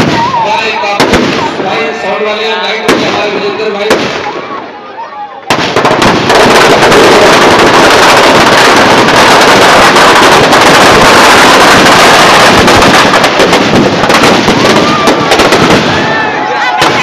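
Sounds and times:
firecrackers banging and crackling: 0.0s - 4.8s, 5.4s - 17.0s.

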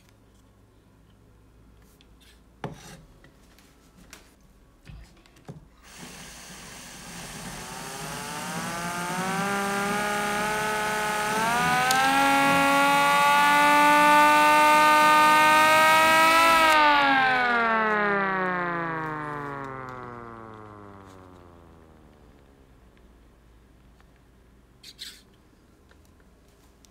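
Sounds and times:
siren winding up and down: 6.0s - 22.7s.

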